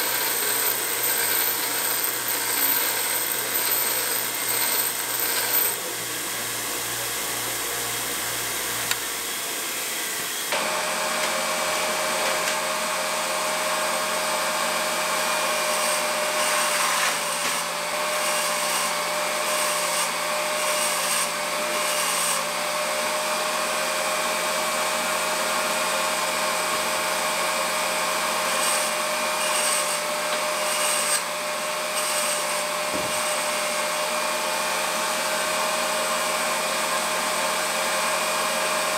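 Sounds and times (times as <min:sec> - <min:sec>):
grinding stone on steel: 0:00.0 - 0:06.0, 0:28.5 - 0:31.3
valve grinding machine running: 0:00.0 - 0:16.6
bench grinder running: 0:00.0 - 0:38.9.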